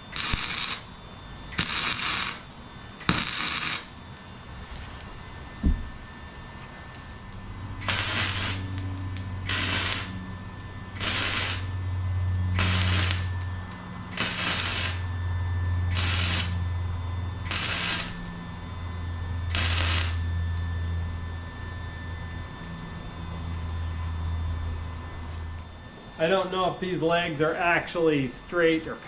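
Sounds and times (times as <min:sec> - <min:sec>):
arc welder crackling: 0:00.0 - 0:06.0, 0:06.6 - 0:22.4
steady low hum: 0:00.0 - 0:29.0.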